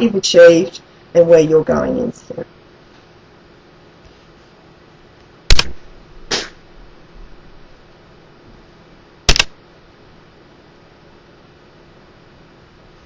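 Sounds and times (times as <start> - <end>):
sharp clicks: 5.5 - 5.8, 9.3 - 9.6.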